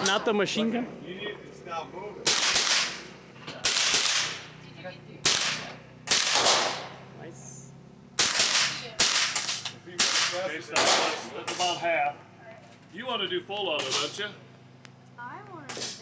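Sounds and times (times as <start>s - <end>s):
rifle shots with echo: 2.2s - 4.5s, 5.2s - 7.0s, 8.2s - 11.6s.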